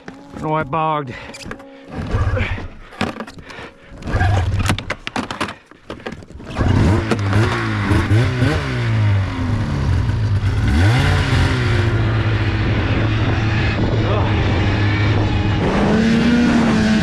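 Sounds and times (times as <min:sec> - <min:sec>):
snowmobile engine revving: 0:06.5 - 0:17.0.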